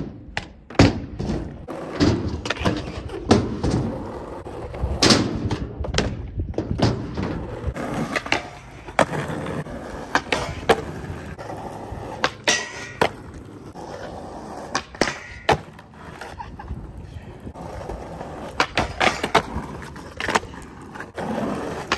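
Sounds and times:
skateboard clacks: 0:00.0 - 0:21.9
skateboard rolling on rough ground: 0:00.0 - 0:21.9
skateboard grinding on metal bar: 0:06.6 - 0:16.3.

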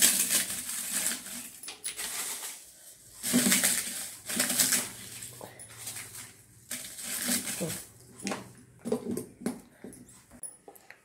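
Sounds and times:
dry chillies crackling: 0:00.0 - 0:08.2.

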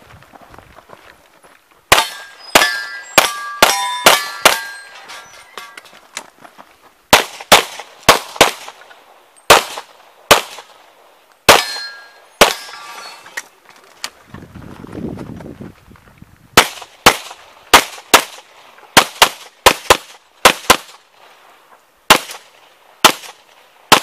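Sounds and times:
pistol shots: 0:01.9 - 0:05.0, 0:07.1 - 0:08.8, 0:09.5 - 0:10.7, 0:11.4 - 0:12.7, 0:16.6 - 0:21.0, 0:22.1 - 0:24.0
steel targets ringing: 0:01.9 - 0:05.9, 0:11.5 - 0:13.4.

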